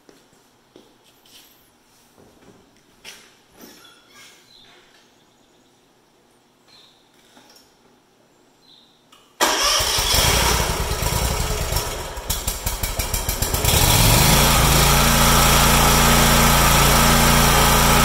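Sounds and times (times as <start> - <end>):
electric starter cranking: 9.4 - 18.0
mower engine running: 9.4 - 18.0.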